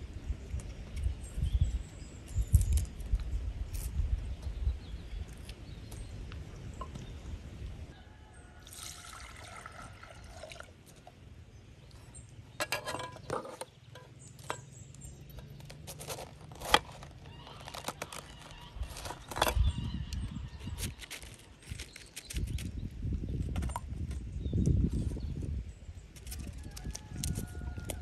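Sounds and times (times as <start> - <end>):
water pouring from a jug: 8.6 - 11.1
knife cutting cabbage: 15.6 - 19.6.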